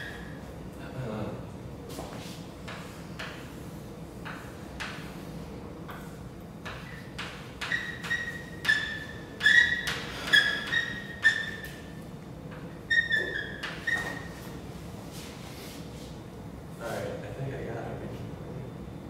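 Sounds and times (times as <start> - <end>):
high chalk squeaks: 0.0 - 0.4, 6.6 - 14.6
chalk tapping and scraping: 5.9 - 11.8.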